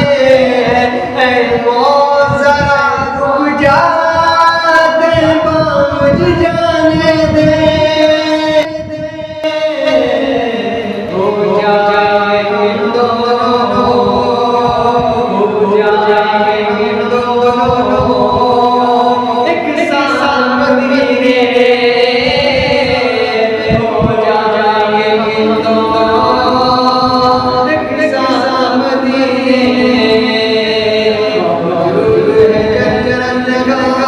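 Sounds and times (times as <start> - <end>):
man singing unaccompanied: 0.0 - 34.0.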